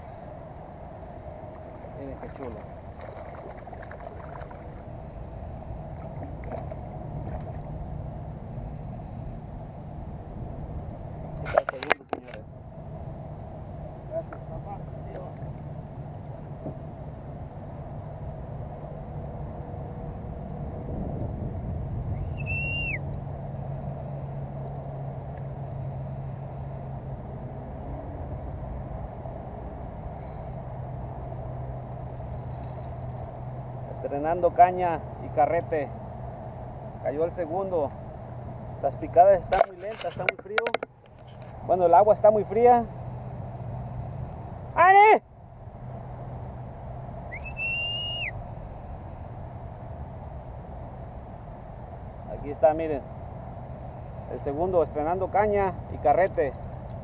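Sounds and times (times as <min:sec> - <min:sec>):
steady low rumble: 0:00.0 - 0:57.0
fish splashing at water surface: 0:01.6 - 0:04.9
whistled bird call: 0:22.1 - 0:23.1, 0:47.3 - 0:48.4.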